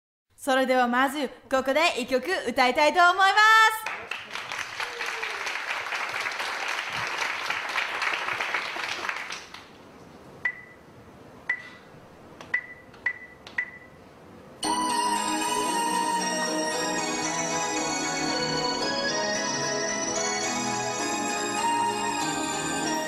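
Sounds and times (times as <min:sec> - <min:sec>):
audience applause: 0:03.8 - 0:09.7
backing music: 0:14.6 - 0:23.0.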